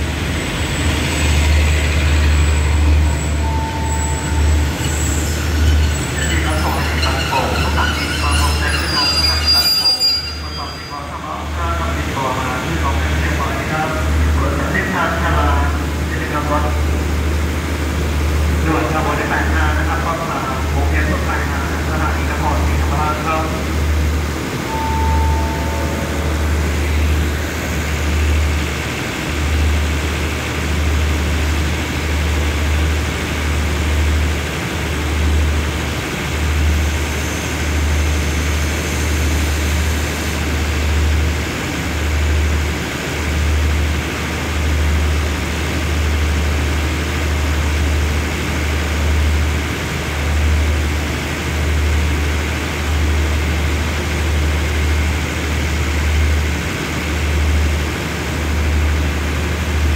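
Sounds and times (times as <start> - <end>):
diesel train engines droning: 0.0 - 59.9
low rumble: 24.8 - 28.6.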